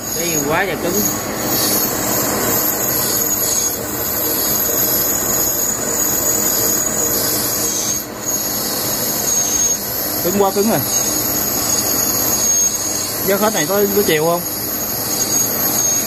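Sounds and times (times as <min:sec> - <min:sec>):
cutting tool squealing: 0:00.0 - 0:16.0
metal lathe machining: 0:00.0 - 0:16.0.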